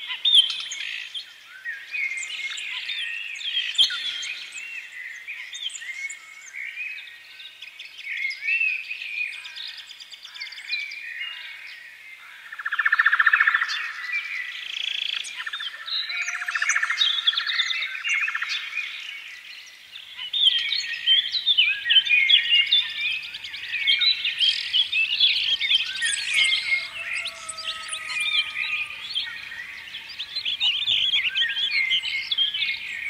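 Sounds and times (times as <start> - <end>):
birds chirping and whistling: 20.0 - 33.0
birds trilling: 20.0 - 33.0.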